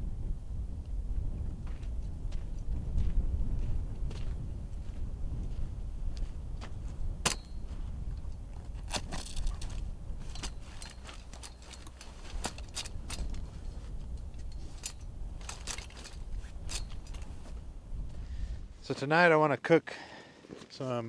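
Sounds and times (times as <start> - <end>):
steady low rumble: 0.0 - 18.9
metal chair frame clicking and rattling: 7.2 - 17.6.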